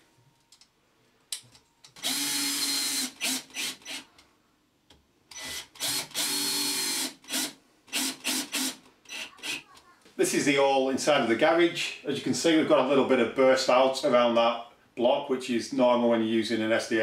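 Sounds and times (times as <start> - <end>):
cordless drill driving screws: 2.0 - 4.1, 5.3 - 9.6.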